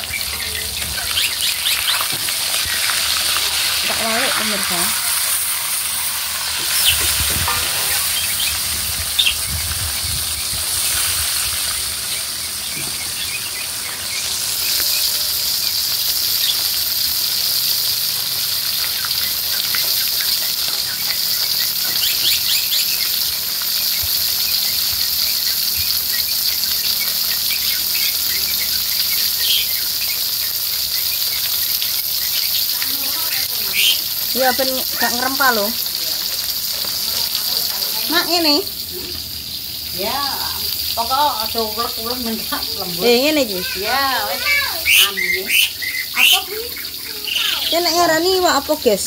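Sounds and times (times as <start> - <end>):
fish sizzling in oil: 0.0 - 49.0
spatula scraping a wok: 1.8 - 8.8.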